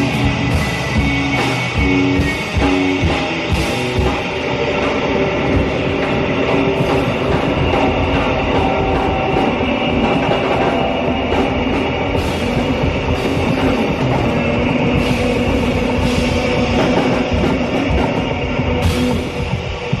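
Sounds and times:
live rock band playing: 0:00.0 - 0:04.4.

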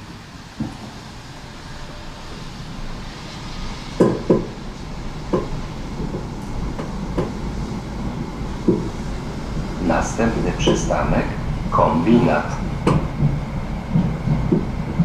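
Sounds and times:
tram rumbling on rails: 0:00.0 - 0:15.0
wheels knocking on rail joints: 0:05.3 - 0:07.5, 0:08.6 - 0:09.1, 0:09.9 - 0:15.0.

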